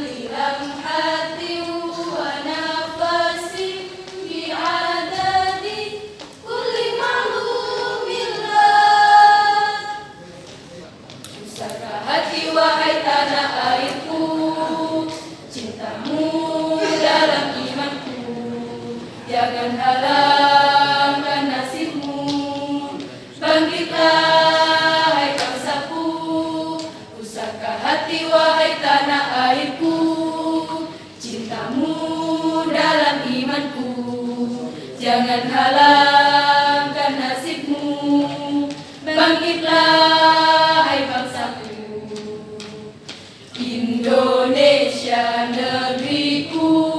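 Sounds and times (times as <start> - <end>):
women's choir singing: 0.0 - 10.2, 11.4 - 46.9.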